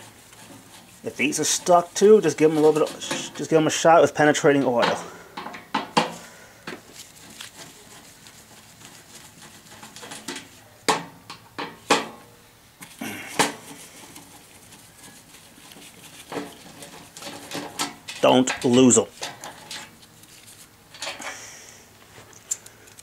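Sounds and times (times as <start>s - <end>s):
soft handling noise: 6.7s - 10.8s, 12.8s - 21.3s
tools clinking against sheet metal: 16.3s - 19.9s.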